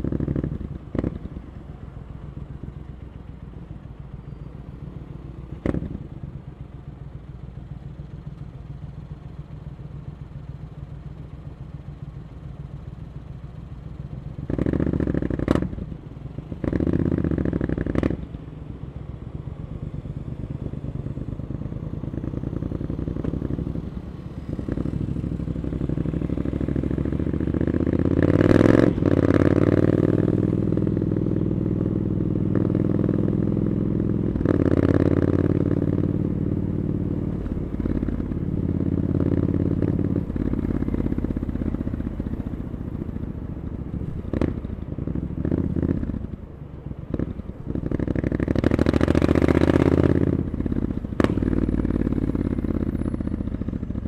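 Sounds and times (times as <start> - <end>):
motorcycle engine revving and accelerating: 14.4 - 18.4, 20.2 - 46.4, 47.1 - 54.0.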